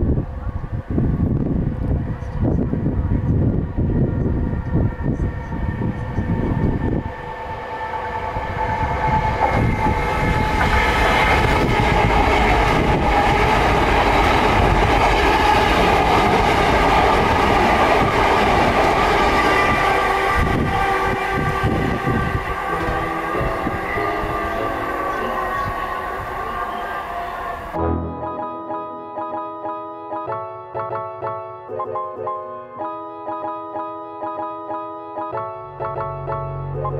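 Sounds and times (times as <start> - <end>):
train low rumble: 0.0 - 28.9
train high-pitched whine: 0.0 - 29.0.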